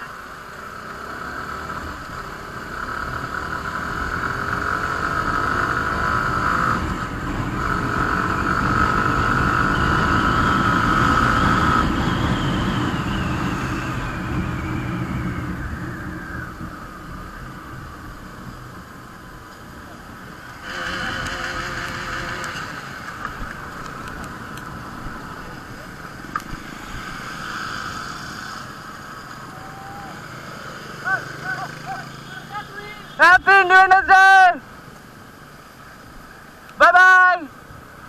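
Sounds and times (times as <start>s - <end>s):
motorcycle engine accelerating: 0.6s - 18.4s, 20.6s - 32.6s
wind rushing over microphone: 6.2s - 30.4s.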